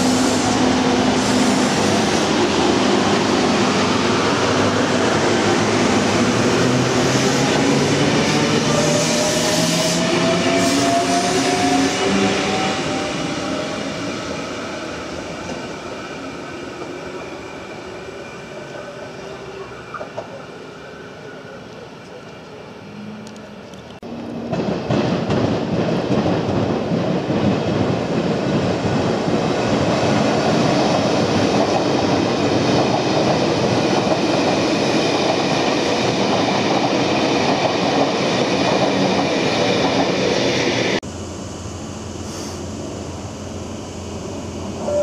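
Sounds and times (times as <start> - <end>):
train wheels rumbling on rails: 23.2 - 41.1.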